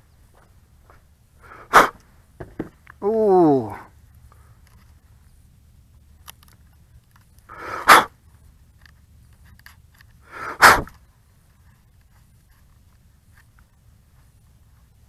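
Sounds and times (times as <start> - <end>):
sharp puffs of breath: 1.4 - 2.0, 7.5 - 8.1, 10.2 - 10.9.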